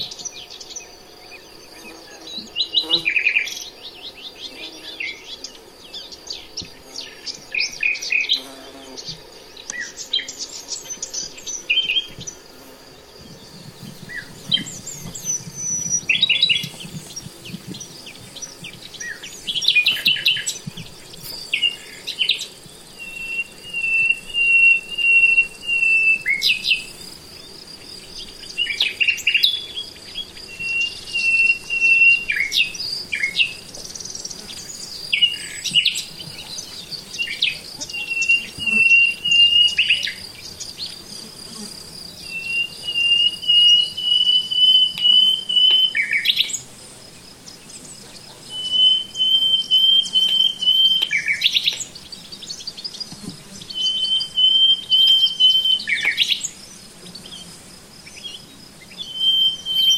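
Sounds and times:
high-pitched insect buzz: 0:00.0 - 0:59.9
songbird trilling: 0:13.8 - 0:20.6, 0:59.0 - 0:59.9.

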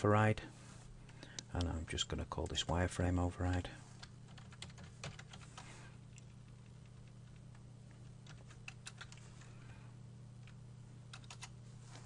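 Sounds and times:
low steady hum: 0:00.0 - 0:12.0
keyboard typing: 0:02.4 - 0:09.5, 0:10.4 - 0:11.6.

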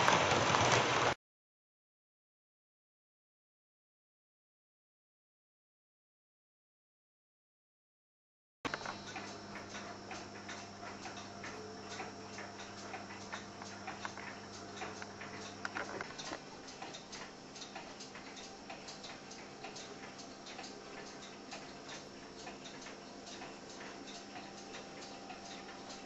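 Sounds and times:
faint steady hum: 0:08.7 - 0:26.0.

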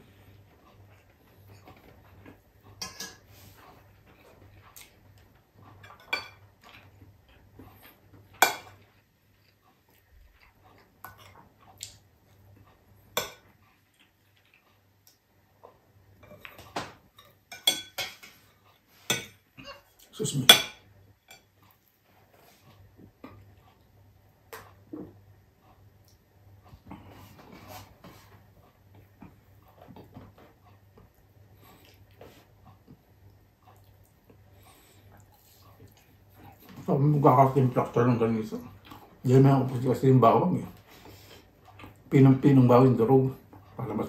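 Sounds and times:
metal spoon clinking on dishes: 0:02.8 - 0:03.2, 0:05.8 - 0:06.4, 0:17.2 - 0:18.4, 0:19.1 - 0:21.5.

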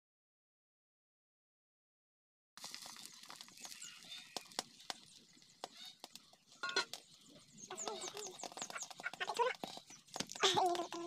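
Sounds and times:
omelette sizzling with pops: 0:02.6 - 0:11.0
small birds chirping: 0:02.7 - 0:11.0.

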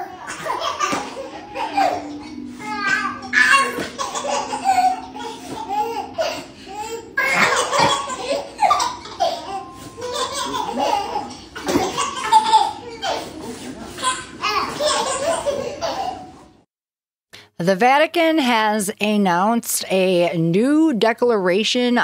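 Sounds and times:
babies laughing and squealing: 0:00.0 - 0:16.5.

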